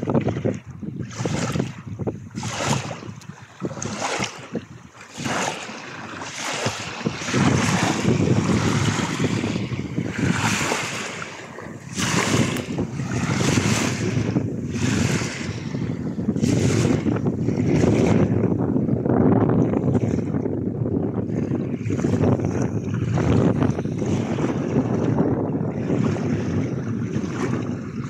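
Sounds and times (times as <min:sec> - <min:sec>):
wind rumbling on microphone: 0:00.0 - 0:28.0
waves washing onto pebbly shore: 0:02.4 - 0:18.4.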